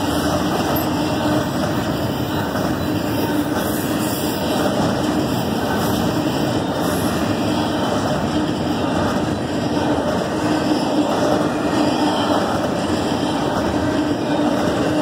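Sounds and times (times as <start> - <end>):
freight train wheels rumbling: 0.0 - 15.0.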